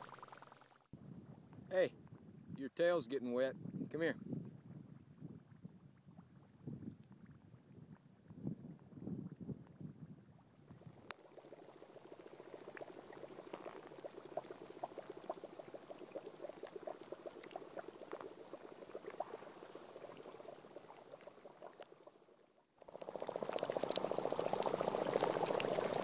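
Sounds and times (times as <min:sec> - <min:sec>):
bubbles fizzing from wet sand: 0:00.0 - 0:00.8, 0:10.4 - 0:26.0.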